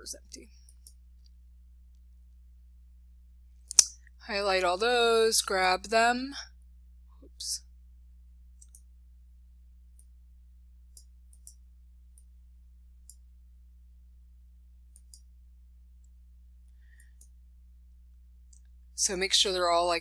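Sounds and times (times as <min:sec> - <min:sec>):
steady low hum: 0:00.0 - 0:20.0
computer mouse clicks: 0:00.6 - 0:02.0, 0:08.6 - 0:08.9, 0:10.9 - 0:12.3, 0:14.9 - 0:15.3, 0:17.0 - 0:17.4.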